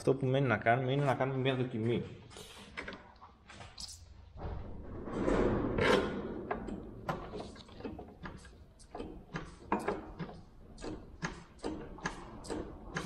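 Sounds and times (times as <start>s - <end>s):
metallic clicks and knocks: 5.4s - 13.0s.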